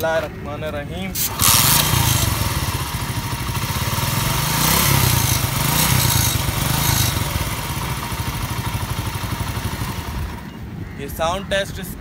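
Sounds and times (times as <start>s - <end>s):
motorcycle engine revving: 1.1s - 10.6s.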